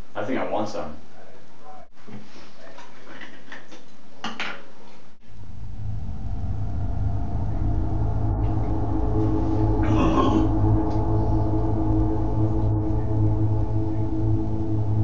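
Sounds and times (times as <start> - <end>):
low steady drone: 5.2 - 15.0.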